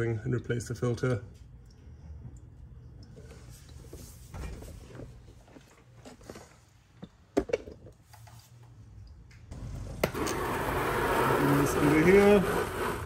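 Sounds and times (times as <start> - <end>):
low steady hum: 0.0 - 11.1.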